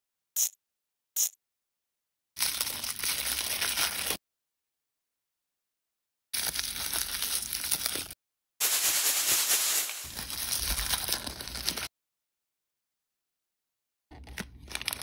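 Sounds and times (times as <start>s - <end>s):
plastic wrappers crinkling: 2.4s - 4.2s, 6.4s - 11.9s.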